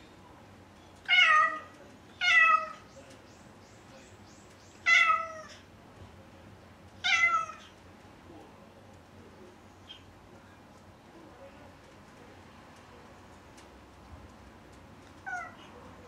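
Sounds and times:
cat meowing loudly: 1.1 - 2.8, 4.9 - 5.6, 7.0 - 7.7, 15.2 - 15.7.

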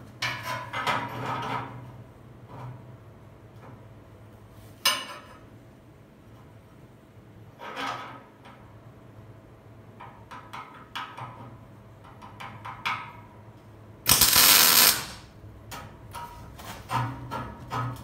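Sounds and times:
welding arc hiss: 14.1 - 15.3.

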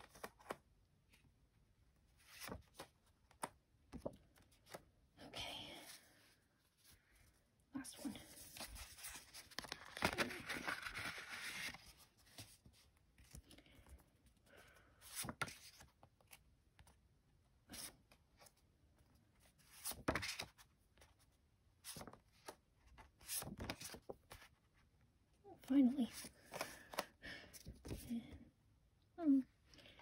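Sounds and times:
photo prints rustling: 8.2 - 13.4
envelope peeled open: 8.6 - 12.0.

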